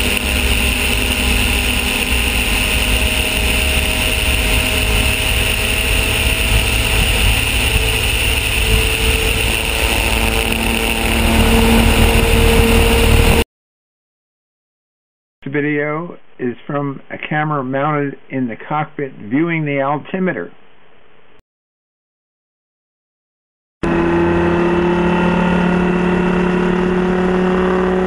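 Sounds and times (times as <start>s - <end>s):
aircraft engine and propeller drone: 0.0s - 13.4s
wind rush over microphone: 0.0s - 13.4s.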